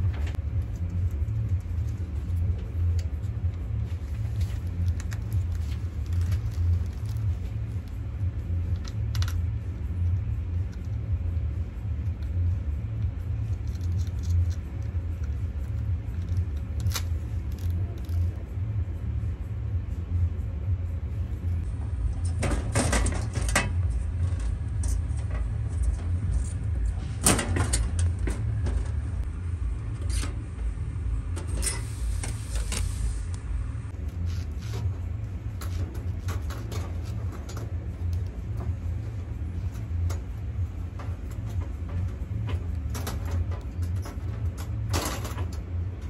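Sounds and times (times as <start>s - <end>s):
steady low rumble: 0.0s - 46.0s
plastic film clicks and crackles: 4.4s - 8.0s.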